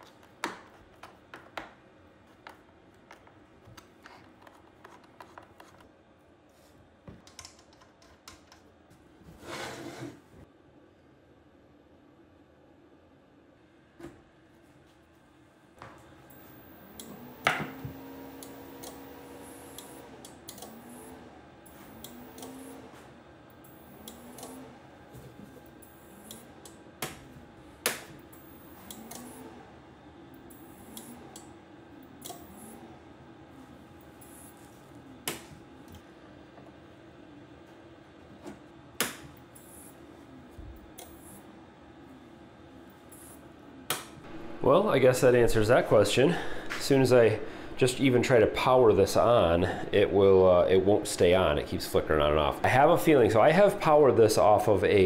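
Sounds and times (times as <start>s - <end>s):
faint steady hum: 10.4s - 55.0s
welder humming: 16.3s - 23.0s
small clicks: 19.7s - 20.8s, 28.8s - 29.3s.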